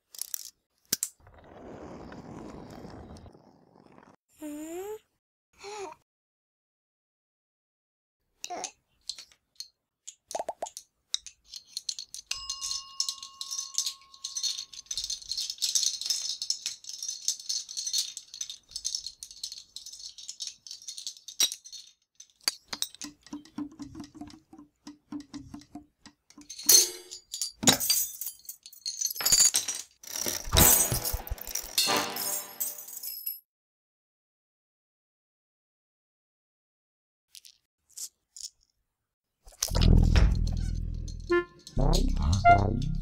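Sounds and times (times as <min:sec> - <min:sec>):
dominoes clattering: 0:09.1 - 0:24.0, 0:26.4 - 0:33.3, 0:37.3 - 0:38.7
bell ringing: 0:12.3 - 0:14.8.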